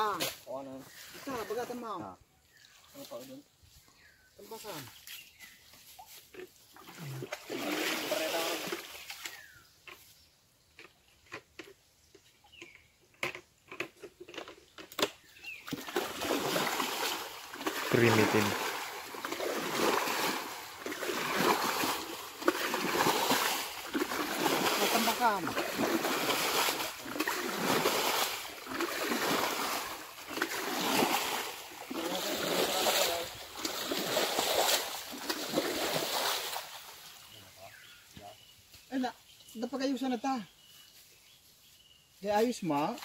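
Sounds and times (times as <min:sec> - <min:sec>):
water splashing from a basin: 0:06.0 - 0:09.6, 0:15.6 - 0:37.4.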